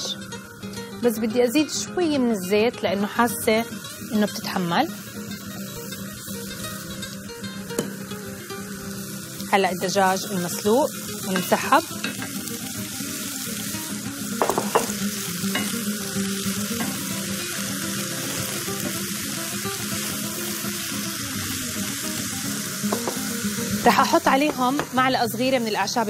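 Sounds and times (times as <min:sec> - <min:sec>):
food sizzling in hot oil: 0:00.0 - 0:26.0.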